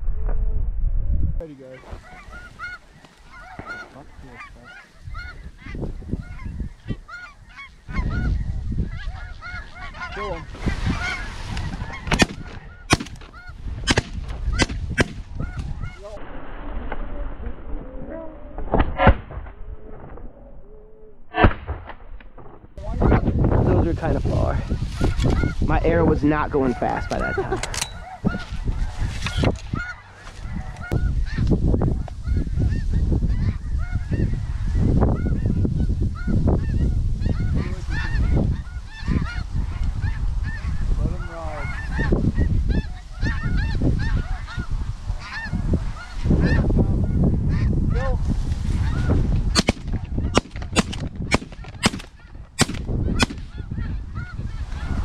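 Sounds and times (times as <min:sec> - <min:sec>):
wind rumble on microphone: 0:00.0 - 0:21.3, 0:22.0 - 0:55.0
geese honking: 0:01.7 - 0:16.2, 0:22.9 - 0:48.1, 0:48.7 - 0:55.0
shotgun shots: 0:12.1 - 0:13.3, 0:13.9 - 0:15.2, 0:49.5 - 0:53.5.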